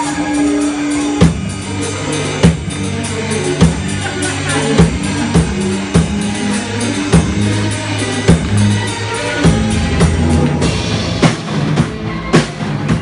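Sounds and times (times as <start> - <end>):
drum hits: 0.0 - 13.0
live rock band playing: 0.0 - 13.0.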